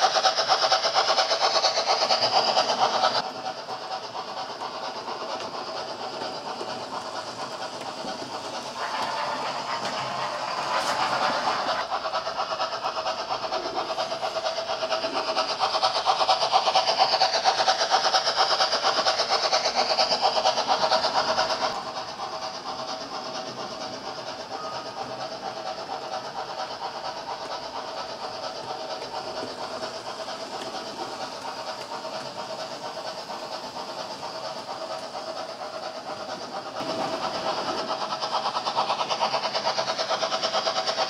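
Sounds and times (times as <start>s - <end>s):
model locomotive motor whir: 0.0s - 41.0s
model train wheels clicking on track: 0.0s - 41.0s.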